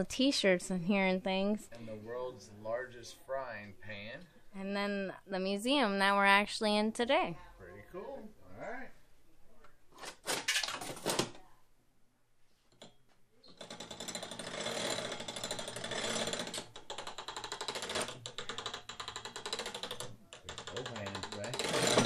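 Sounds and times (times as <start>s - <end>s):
cranked machine ratcheting clatter: 13.6s - 22.0s.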